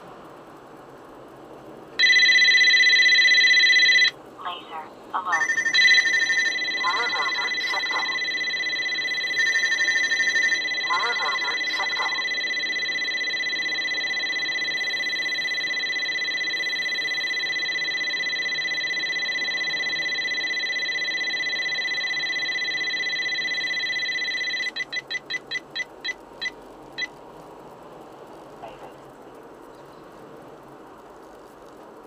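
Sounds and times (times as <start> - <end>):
short electronic beeps: 5.3 - 27.1
steady high electronic tone: 5.4 - 27.1.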